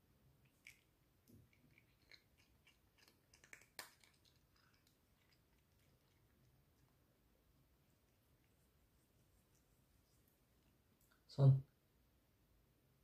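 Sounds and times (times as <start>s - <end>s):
cat crunching dry treats: 0.6s - 6.9s.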